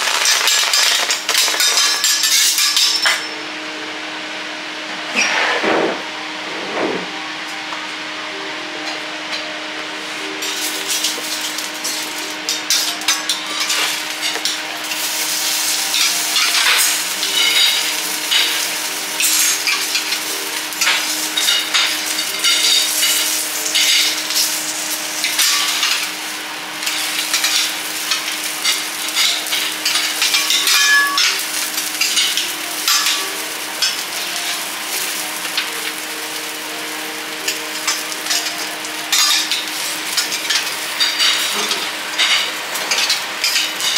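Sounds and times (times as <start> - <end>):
oil and vegetables sizzling: 0.0 - 3.3, 9.9 - 43.9
metal spatula scraping griddle: 5.1 - 7.1.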